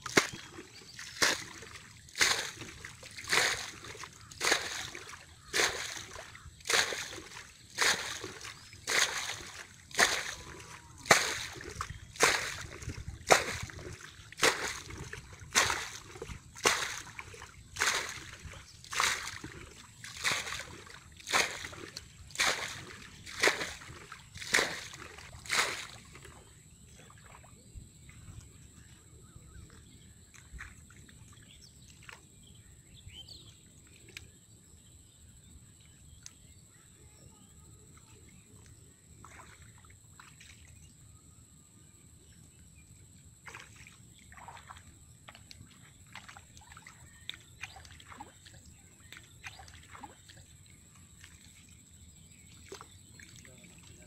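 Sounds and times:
water splashing from bucket: 0:00.0 - 0:26.5, 0:43.5 - 0:50.4.

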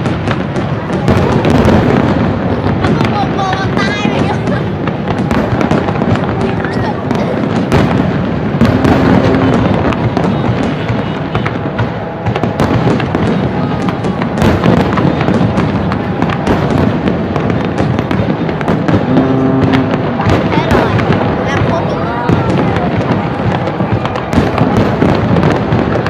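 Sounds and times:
fireworks booming and crackling: 0:00.0 - 0:26.0.

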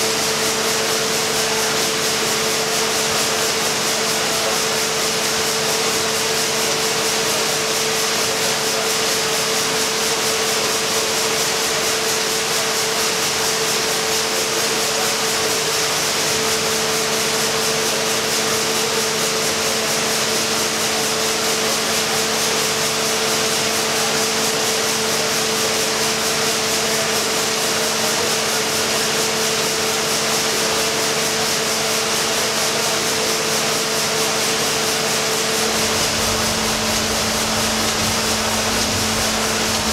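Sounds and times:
steam engine clatter: 0:00.0 - 0:39.9
constant hum: 0:35.5 - 0:39.9.

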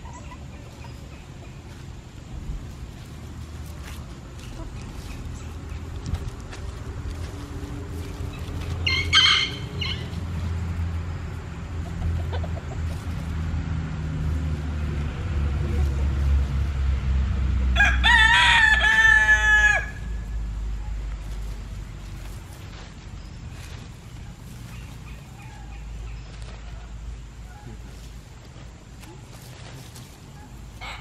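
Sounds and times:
steady low rumble: 0:00.0 - 0:19.2, 0:19.8 - 0:30.8
chicken squawk: 0:08.8 - 0:10.2, 0:30.4 - 0:31.0
rooster crowing: 0:08.8 - 0:10.2, 0:17.7 - 0:20.4, 0:30.8 - 0:31.0.

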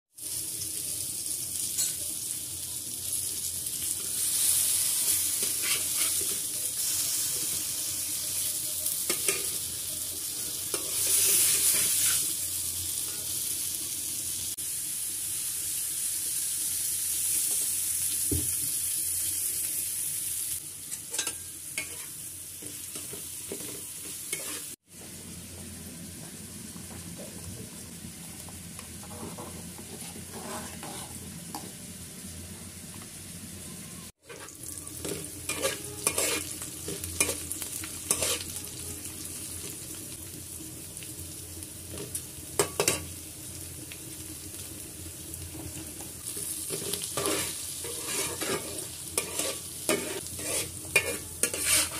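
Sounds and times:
oil sizzling in a frying pan: 0:00.1 - 0:51.9
utensil stirring and scraping: 0:29.0 - 0:31.2, 0:35.5 - 0:36.5, 0:46.7 - 0:51.9.

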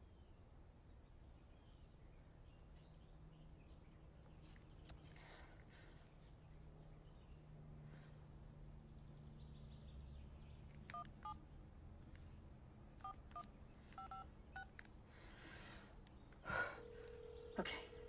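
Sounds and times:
phone keypad beeps: 0:10.9 - 0:11.4, 0:13.0 - 0:14.7
phone ringing tone: 0:14.0 - 0:14.7, 0:16.8 - 0:18.0.

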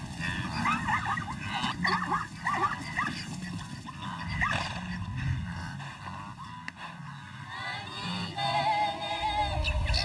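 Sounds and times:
animal yelping calls: 0:00.4 - 0:05.0.

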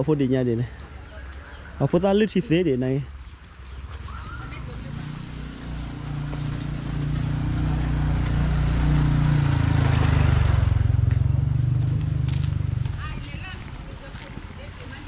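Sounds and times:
vehicle engine passing: 0:04.1 - 0:13.5.

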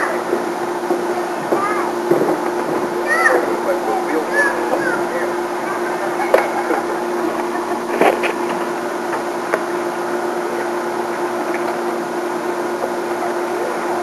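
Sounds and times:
steady mechanical hum: 0:00.0 - 0:14.0.

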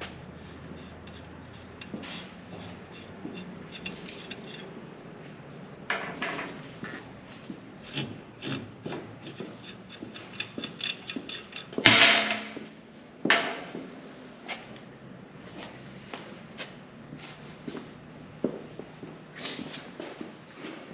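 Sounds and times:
tools clicking and knocking: 0:05.9 - 0:06.6, 0:07.9 - 0:12.6
loud ringing metal clank: 0:10.8 - 0:12.7.

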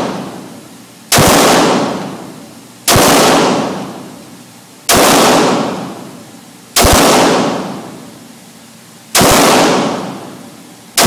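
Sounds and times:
pistol shots with echo: 0:00.0 - 0:00.5, 0:01.1 - 0:04.2, 0:04.9 - 0:06.2, 0:06.8 - 0:08.1, 0:09.1 - 0:11.0.

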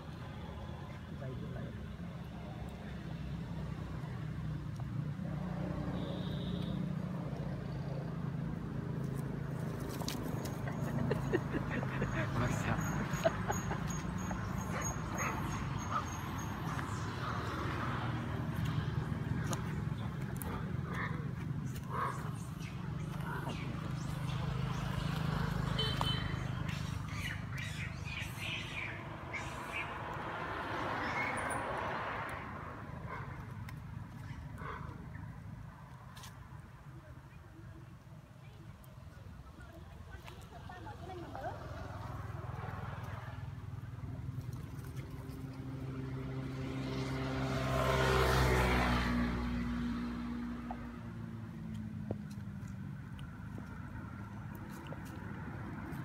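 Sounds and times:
animal squeaking and chirping: 0:12.8 - 0:17.5.

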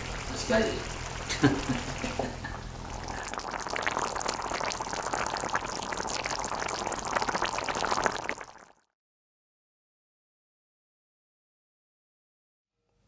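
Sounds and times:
sauce bubbling and popping: 0:00.0 - 0:08.9.

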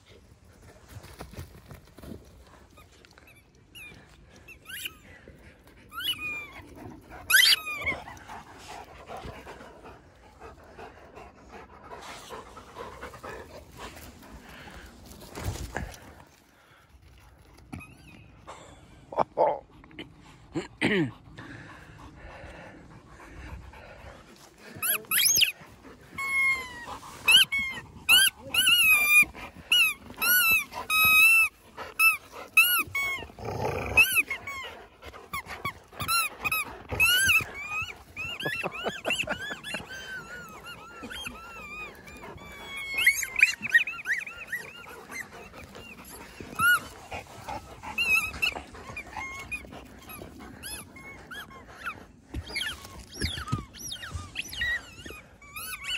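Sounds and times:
dogs whining and yelping: 0:02.7 - 0:13.4, 0:17.5 - 0:18.8, 0:24.7 - 0:55.9
dogs growling: 0:03.8 - 0:17.4, 0:18.4 - 0:55.9.

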